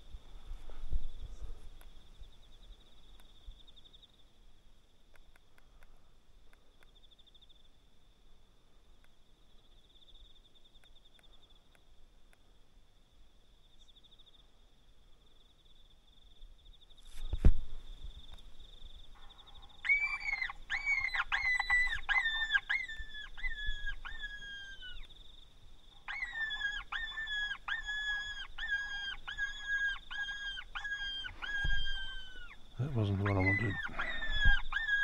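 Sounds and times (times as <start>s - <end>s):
high-pitched falling cries: 26.1s - 35.0s.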